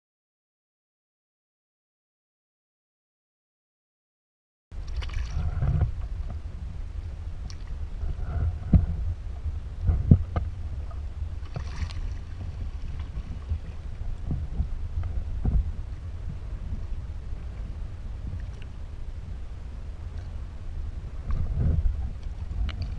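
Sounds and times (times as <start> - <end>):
wind rumble on microphone: 4.7 - 22.9.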